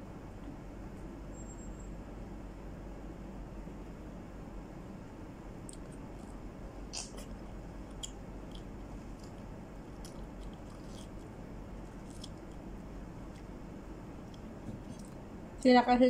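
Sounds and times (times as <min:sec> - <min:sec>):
steady low hum: 0:00.0 - 0:16.0
person biting and chewing fruit: 0:05.6 - 0:15.3
mouth clicks: 0:06.9 - 0:09.4.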